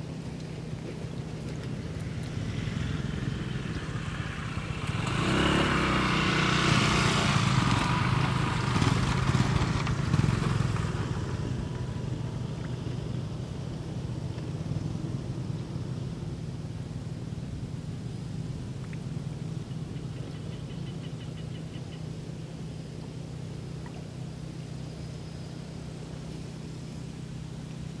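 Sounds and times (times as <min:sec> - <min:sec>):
vehicle engine passing by: 0:00.9 - 0:21.5.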